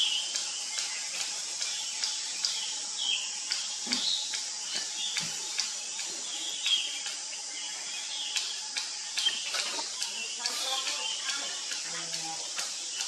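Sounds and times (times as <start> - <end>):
birds chirping: 0.0 - 13.0
insect drone: 0.0 - 13.0.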